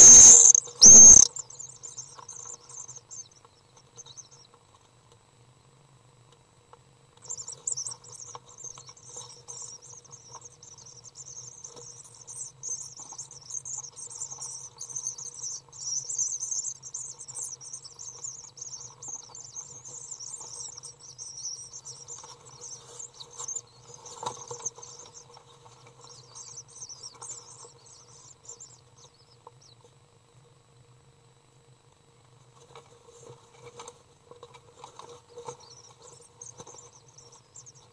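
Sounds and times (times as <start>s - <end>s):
bird chick chittering calls: 0.0s - 4.5s, 7.2s - 29.8s.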